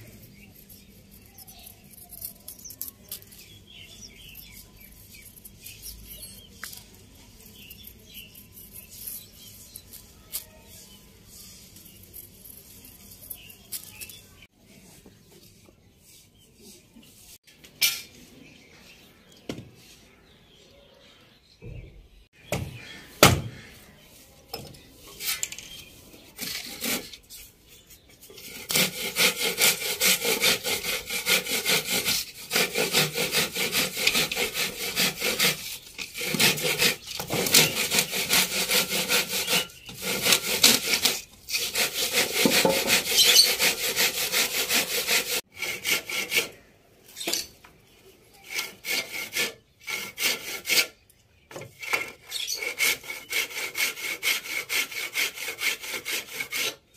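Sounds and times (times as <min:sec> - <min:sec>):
hand saw cutting wood: 0:26.4 - 0:27.3, 0:28.2 - 0:46.7, 0:48.4 - 0:51.0, 0:51.8 - 0:56.9.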